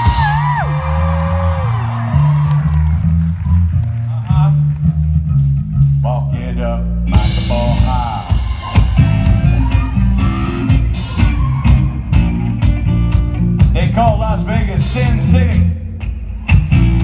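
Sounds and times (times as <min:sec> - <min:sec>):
drum kit with cymbals: 0:00.0 - 0:00.8, 0:07.1 - 0:17.0
bass guitar line: 0:00.0 - 0:17.0.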